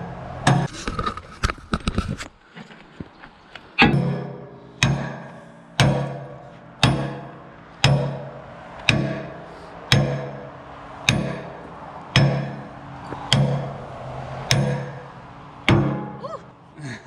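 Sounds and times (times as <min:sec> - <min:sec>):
sledgehammer clanging on steel pin: 0:03.8 - 0:13.8, 0:14.5 - 0:15.1, 0:15.7 - 0:16.2.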